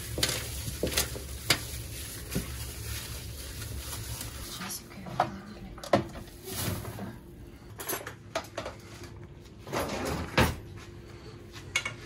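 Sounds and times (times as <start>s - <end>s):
cupboard doors and cookware banging: 9.6s - 10.7s.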